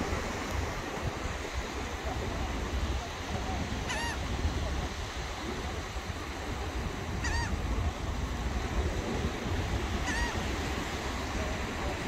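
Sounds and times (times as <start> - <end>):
surf: 0.0 - 12.0
wind rumbling on microphone: 0.0 - 12.0
bird call: 3.9 - 4.2.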